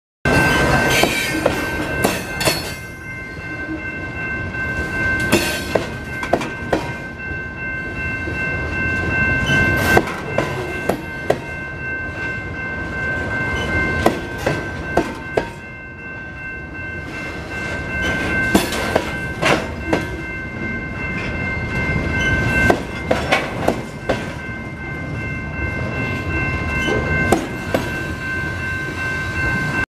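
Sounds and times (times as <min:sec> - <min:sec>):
wheels clanking over rail joint: 0:00.3 - 0:02.9, 0:18.0 - 0:20.2, 0:22.0 - 0:24.5
high ringing tone: 0:00.3 - 0:29.9
train wheels rumbling on rails: 0:00.3 - 0:29.9.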